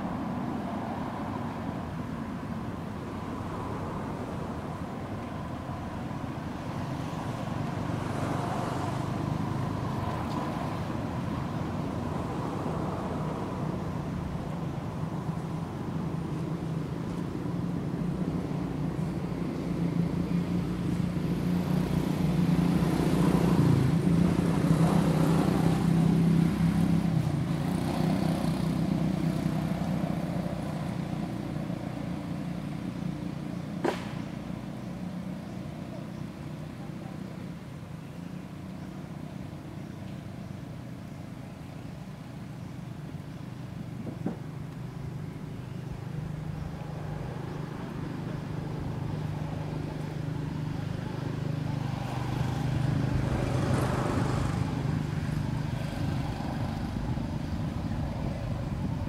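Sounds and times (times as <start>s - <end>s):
sharp knock: 33.8s - 34.3s.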